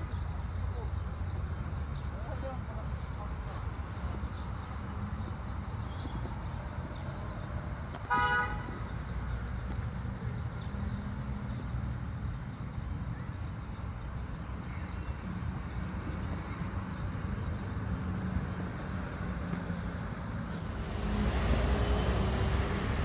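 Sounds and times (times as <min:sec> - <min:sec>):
street traffic noise: 0:00.0 - 0:23.0
car horn toot: 0:08.1 - 0:08.6.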